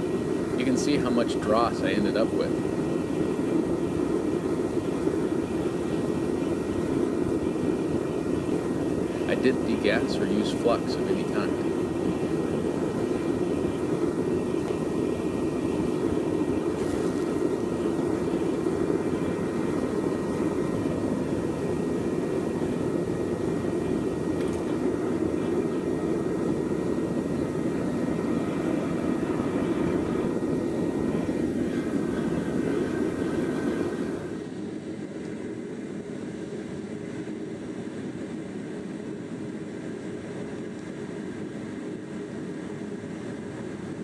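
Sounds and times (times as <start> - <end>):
furnace burner rushing: 0.0 - 34.3.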